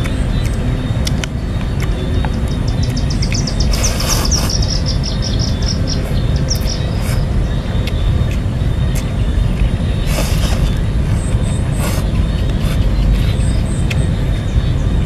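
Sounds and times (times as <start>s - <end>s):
small bird trilling: 1.9s - 7.9s.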